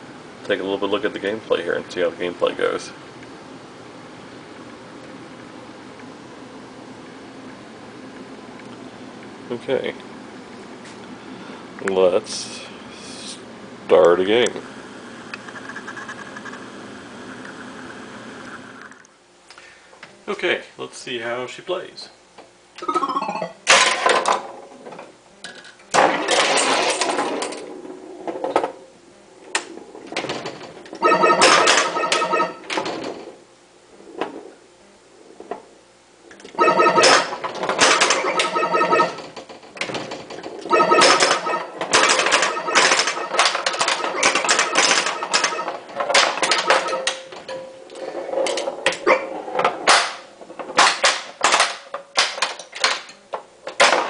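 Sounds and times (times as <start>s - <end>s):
electronic game tones: 22.8s - 23.7s, 31.0s - 32.7s, 36.6s - 37.4s, 38.1s - 39.2s, 40.7s - 45.9s, 46.5s - 47.3s
pinball ball clattering on bumpers: 22.8s - 24.5s, 26.0s - 27.7s, 30.1s - 33.2s, 36.6s - 47.8s, 49.7s - 53.1s.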